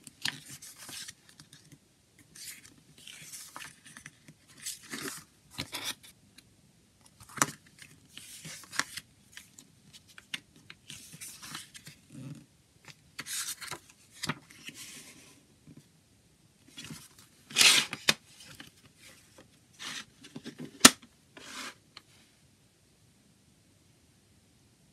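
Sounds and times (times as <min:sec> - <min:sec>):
paper booklet rustling: 0:00.0 - 0:06.0, 0:07.2 - 0:12.0, 0:12.9 - 0:15.2.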